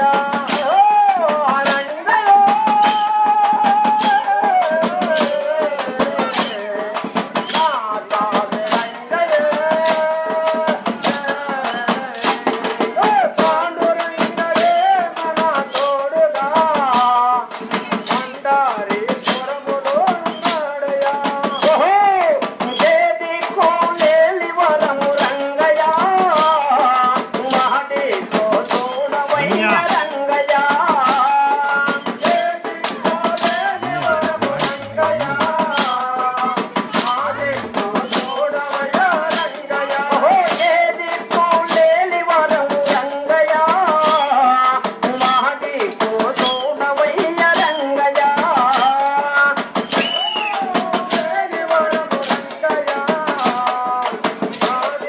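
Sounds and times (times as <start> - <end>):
jingling rattle percussion: 3.7 - 21.8, 26.4 - 45.4
devotional singing: 18.5 - 49.8.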